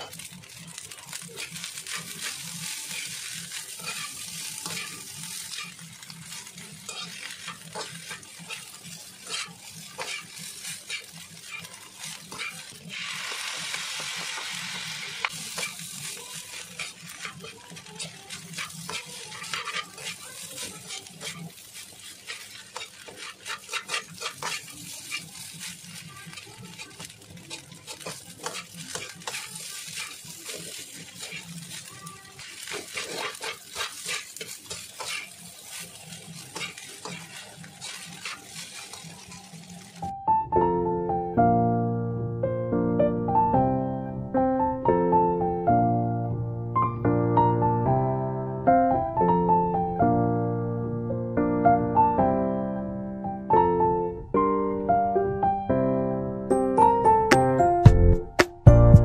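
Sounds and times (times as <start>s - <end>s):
metal spatula scraping wok: 0.0s - 40.1s
sauce hissing in hot pan: 0.0s - 40.1s
rice sizzling in wok: 0.0s - 40.3s.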